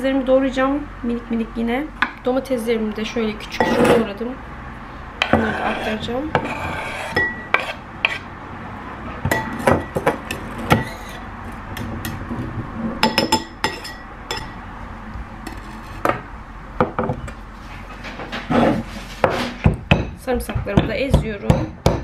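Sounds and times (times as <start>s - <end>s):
knife scraping chopping board: 3.5s - 4.1s, 5.2s - 8.3s, 10.4s - 11.2s, 15.5s - 16.1s, 18.3s - 19.6s
clinks on ceramic bowl: 13.0s - 14.6s.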